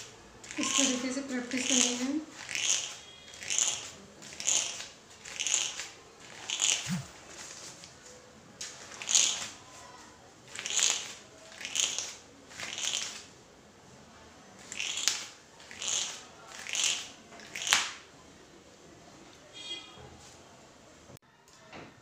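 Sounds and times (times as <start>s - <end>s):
thread scraping across newspaper: 0.0s - 13.3s.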